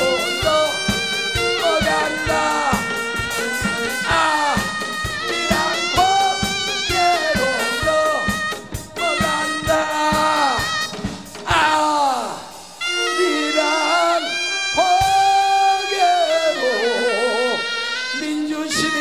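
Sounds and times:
lead melody with bending notes: 0.0s - 11.5s
drum kit steady beat: 0.0s - 15.6s.

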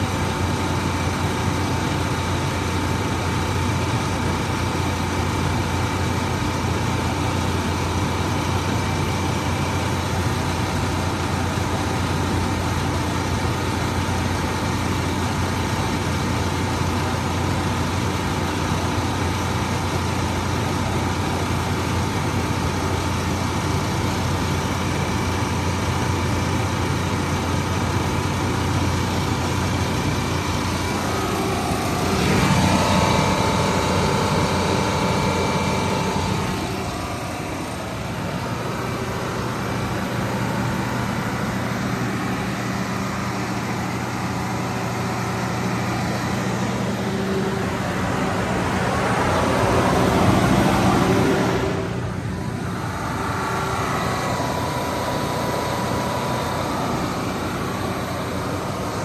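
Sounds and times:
diesel generator running: 0.0s - 59.0s.

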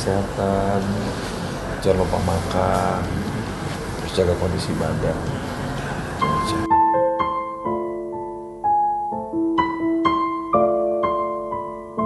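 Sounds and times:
slow soft piano music: 5.2s - 12.0s.

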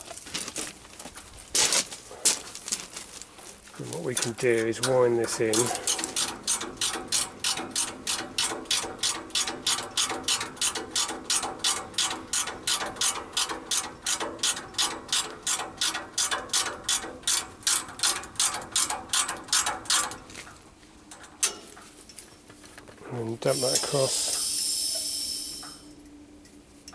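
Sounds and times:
ratchet spanner clicking: 4.1s - 20.2s, 23.5s - 25.8s.

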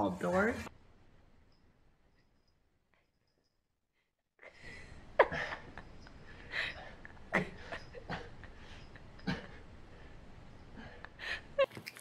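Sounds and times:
low room noise: 4.4s - 12.0s.

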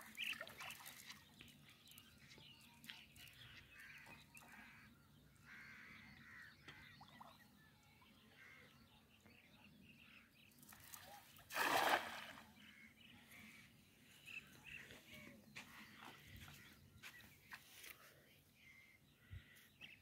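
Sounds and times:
small water sound: 0.0s - 4.9s, 10.4s - 12.8s
distant bird calls: 2.2s - 20.0s.

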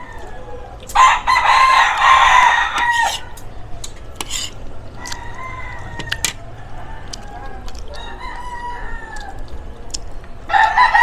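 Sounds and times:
rooster crowing: 0.0s - 3.4s, 4.9s - 9.4s, 10.5s - 11.0s.

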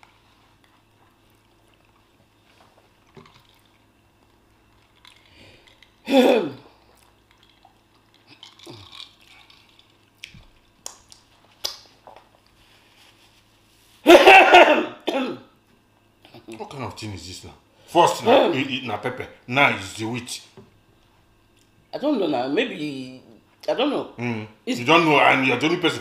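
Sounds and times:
chewing and mouth noises: 0.0s - 6.0s, 6.6s - 12.6s
man drinking water: 0.0s - 12.6s.

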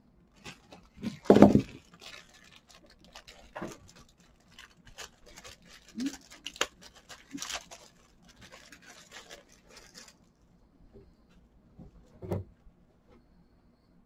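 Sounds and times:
plastic bags crinkling: 0.4s - 10.4s.

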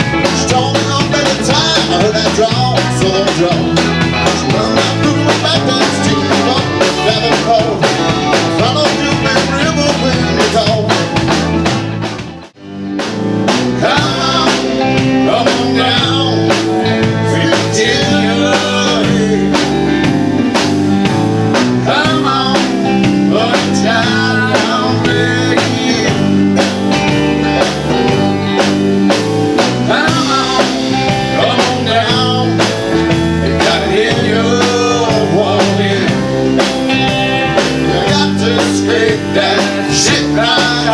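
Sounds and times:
man singing: 0.0s - 11.5s, 13.7s - 20.1s, 21.8s - 26.4s, 29.8s - 36.7s, 37.5s - 40.9s
rock band playing: 0.0s - 40.9s.

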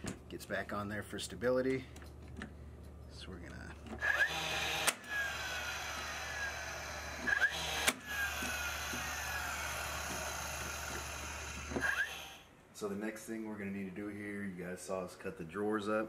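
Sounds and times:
nailer motor whirring: 3.8s - 12.5s
nail gun shots cracking: 4.0s - 5.3s, 7.2s - 9.1s.

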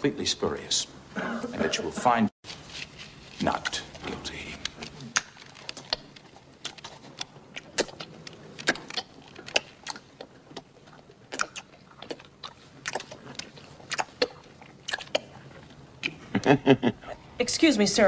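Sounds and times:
plastic pen being chewed: 4.4s - 15.3s.

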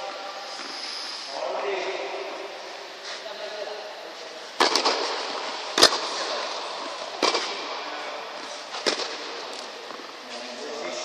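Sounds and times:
tennis ball pops off rackets: 4.6s - 5.2s, 7.2s - 7.6s, 8.8s - 9.4s.

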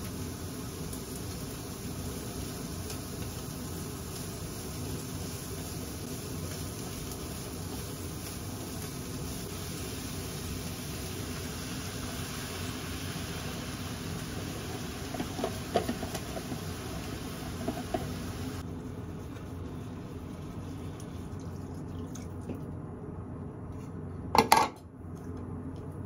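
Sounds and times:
frying hiss: 0.0s - 21.9s
chopsticks tapping in frying pan: 15.1s - 16.7s, 17.4s - 18.4s.

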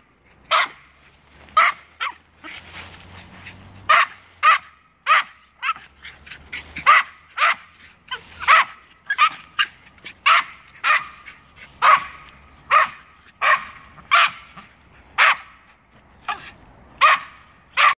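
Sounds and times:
dogs barking: 0.4s - 2.7s, 3.3s - 18.0s
dog yips: 6.6s - 11.2s.

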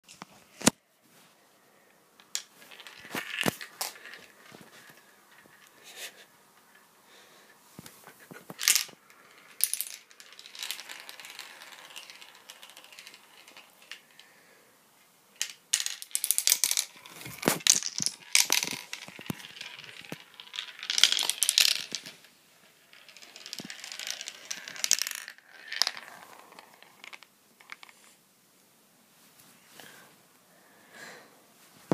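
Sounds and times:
marbles clattering through plastic run: 2.2s - 5.7s, 8.5s - 14.2s, 15.4s - 28.0s.

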